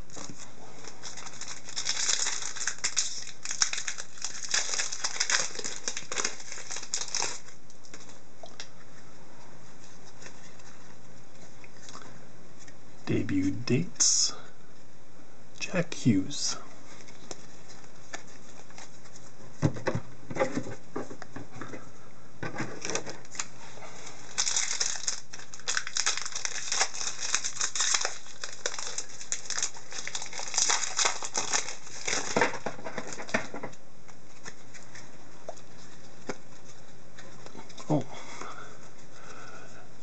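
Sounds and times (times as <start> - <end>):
plastic wrapper crinkling: 0.0 - 8.2, 22.8 - 33.5.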